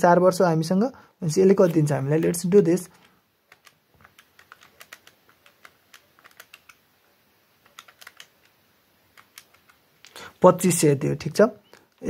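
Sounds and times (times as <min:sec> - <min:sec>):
calculator keys clicking: 0:03.5 - 0:06.8, 0:07.6 - 0:08.5, 0:09.1 - 0:10.2.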